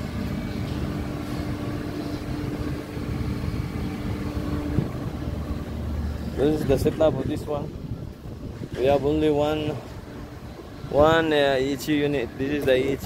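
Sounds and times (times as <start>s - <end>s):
hvac machinery rumbling: 0.0s - 13.0s
steady hum: 0.0s - 13.0s.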